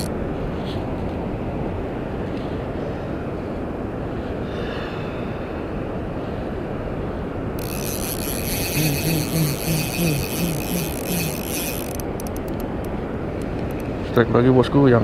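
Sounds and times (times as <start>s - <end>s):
fishing reel gears whirring: 7.6s - 13.8s.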